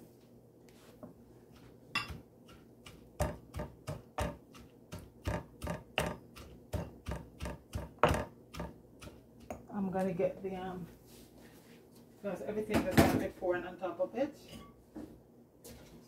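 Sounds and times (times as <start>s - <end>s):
pestle pounding in mortar: 2.0s - 9.7s.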